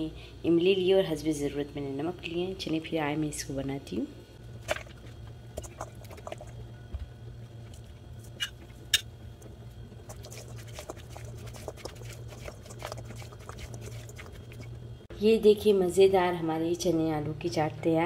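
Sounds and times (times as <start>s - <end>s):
low steady hum: 0.0s - 18.0s
stirring clicks and scrapes in bowl: 5.0s - 6.6s, 7.6s - 14.9s.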